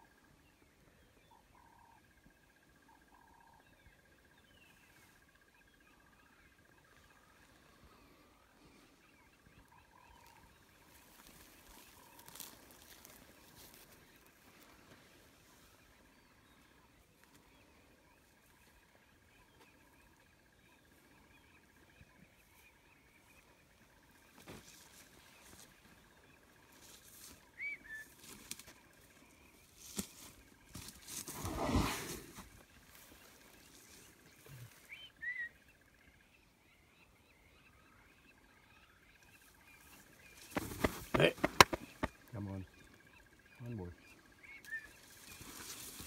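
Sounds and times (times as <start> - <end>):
faint bird calls: 0.0 - 46.0
whistled bird chirp: 27.6 - 28.1, 34.9 - 35.6.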